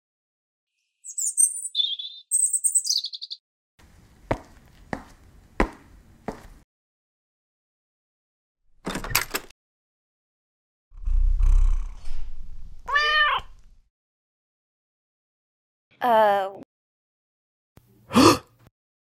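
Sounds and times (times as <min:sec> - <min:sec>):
birds chirping: 0:00.8 - 0:03.4
footsteps: 0:03.8 - 0:06.6.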